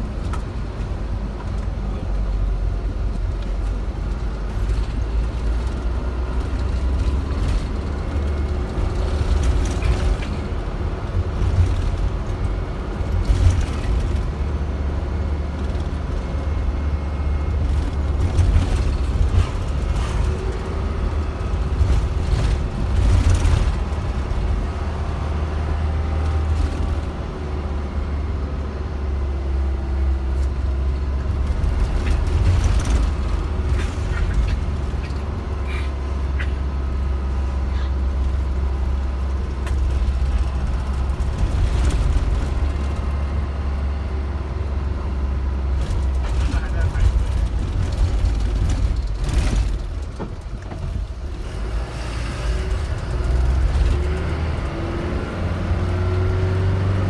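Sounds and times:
bus engine and road drone: 0.0 - 57.0
rattles and knocks: 17.6 - 24.7, 31.3 - 35.4, 45.7 - 51.2.

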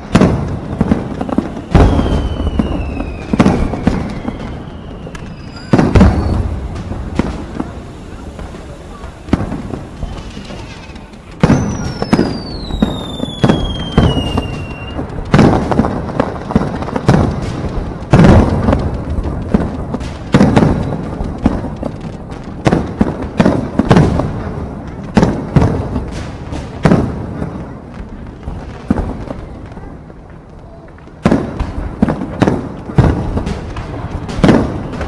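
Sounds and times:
falling firework whistle: 0.0 - 18.8, 20.0 - 21.9, 33.1 - 35.0
fireworks bangs echoing: 0.0 - 35.0.

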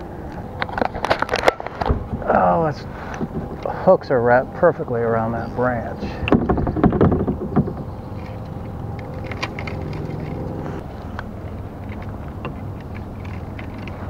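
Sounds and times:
steady low rumble: 0.0 - 14.0
fishing rod knocks and rattling: 6.2 - 10.5.

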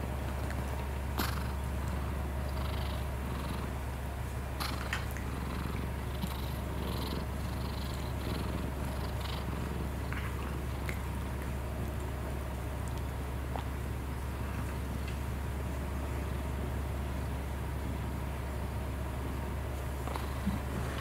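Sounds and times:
cat purring: 0.4 - 3.9, 4.6 - 11.6, 20.0 - 21.0.

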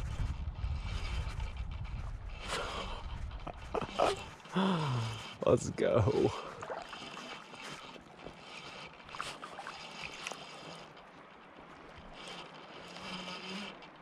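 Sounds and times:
river water flowing: 3.9 - 14.0
faint clicks: 6.9 - 14.0.

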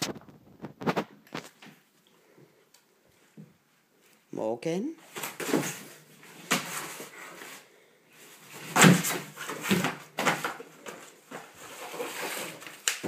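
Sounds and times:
cardboard box thumping and scraping: 8.5 - 10.6.

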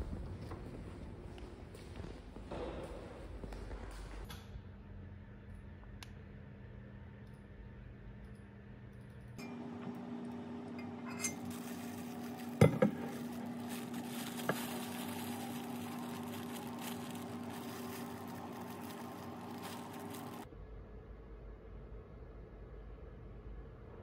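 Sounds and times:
steady low hum: 0.0 - 24.0
plastic snack bag crinkling: 11.3 - 20.5
bottle knocking on desk: 12.6 - 13.0.

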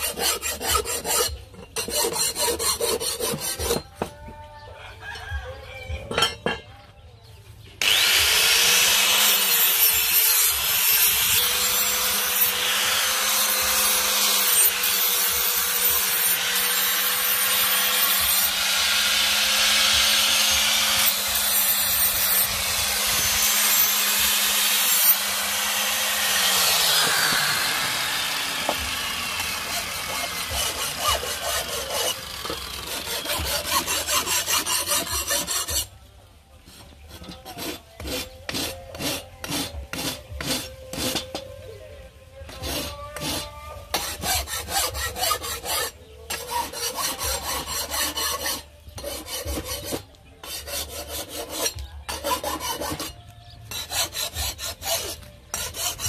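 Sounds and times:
rasping sharpening strokes: 0.0 - 4.1, 8.8 - 35.9, 36.7 - 41.5, 42.5 - 56.0
grinder motor winding down: 7.8 - 9.5, 23.3 - 30.0
angle grinder grinding steel: 7.8 - 35.9, 42.5 - 56.0.

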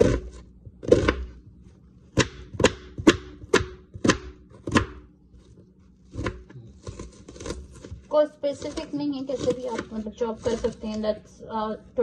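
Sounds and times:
knife chopping onion on board: 0.0 - 1.3, 2.2 - 5.1, 6.1 - 7.9, 8.6 - 11.0.

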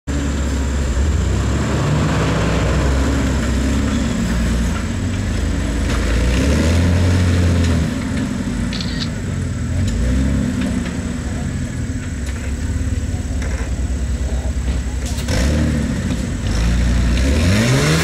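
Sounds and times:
off-road vehicle engine under load: 0.0 - 18.0.

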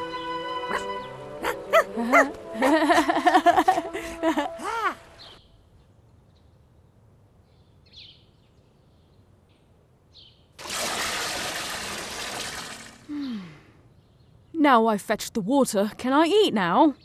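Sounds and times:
water splashing into vat: 10.6 - 13.1.

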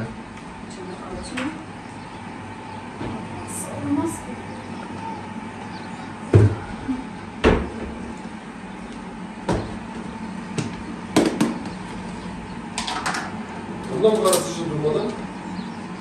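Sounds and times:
utensils rattling: 12.8 - 14.6.

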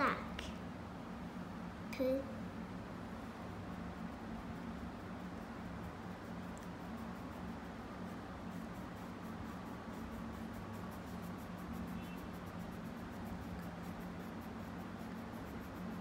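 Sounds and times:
steady low hum: 0.0 - 16.0
pencil scribbling on paper: 3.6 - 16.0.

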